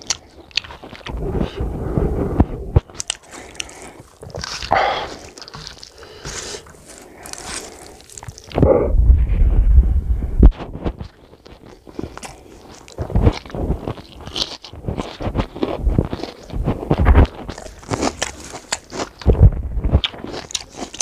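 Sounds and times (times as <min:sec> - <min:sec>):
wet chewing: 0:00.0 - 0:08.9, 0:10.5 - 0:21.0
fingers squelching rice on plate: 0:02.7 - 0:08.6
finger licking: 0:02.8 - 0:08.8
lip smacks: 0:02.8 - 0:08.9.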